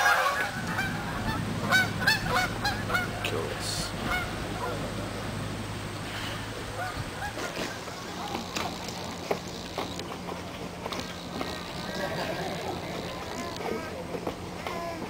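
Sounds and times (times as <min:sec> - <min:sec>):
waterfowl honking: 0:00.0 - 0:05.4, 0:06.0 - 0:10.0
steady low hum: 0:00.0 - 0:15.0.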